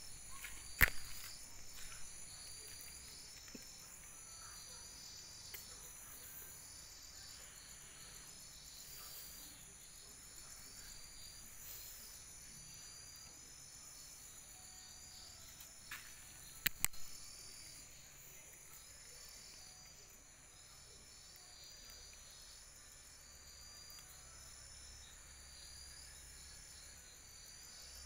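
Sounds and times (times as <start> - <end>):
night insects trilling: 0.0 - 28.0
sharp clicks: 0.4 - 2.0, 16.6 - 17.2.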